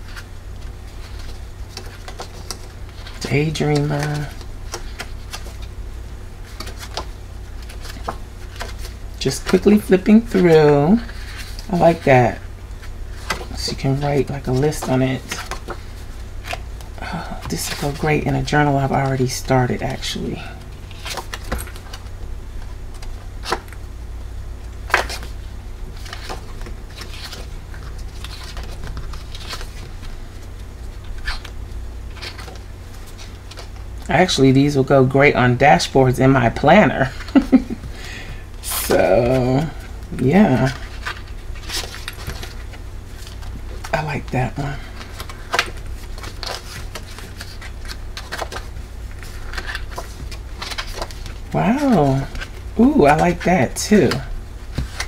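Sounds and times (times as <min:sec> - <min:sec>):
paper pages flipping: 0:00.0 - 0:05.8, 0:06.4 - 0:23.8, 0:24.7 - 0:34.1, 0:37.0 - 0:37.9, 0:38.8 - 0:55.0
steady low hum: 0:00.0 - 0:55.0
paper pages flicking: 0:06.4 - 0:12.0, 0:24.9 - 0:33.8, 0:45.0 - 0:51.4.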